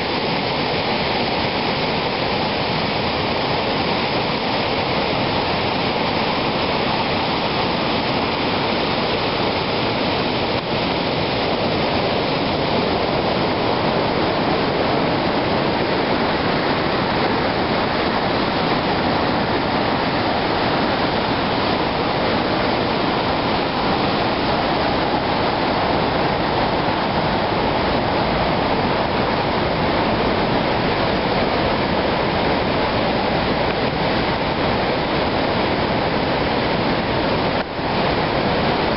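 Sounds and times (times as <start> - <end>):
whitewater rapids rushing: 0.0 - 38.9.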